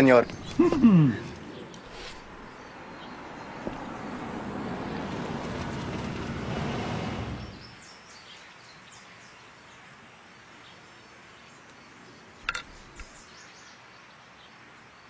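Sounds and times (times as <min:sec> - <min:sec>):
outdoor rumble: 0:00.0 - 0:07.9.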